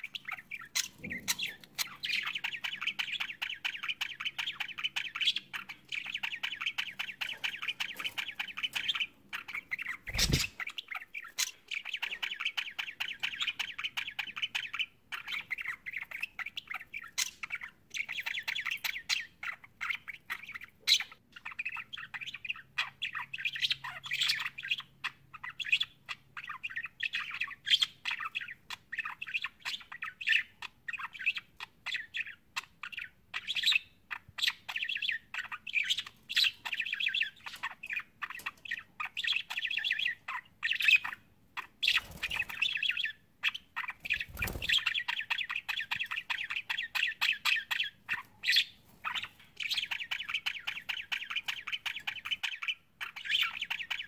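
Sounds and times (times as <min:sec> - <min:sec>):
budgerigars chirping and warbling: 0:00.0 - 0:54.0.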